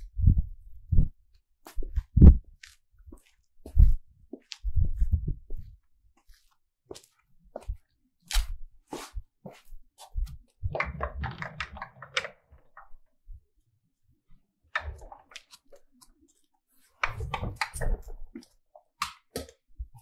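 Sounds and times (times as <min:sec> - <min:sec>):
shuffling footsteps on hard floor: 0:01.7 - 0:10.4.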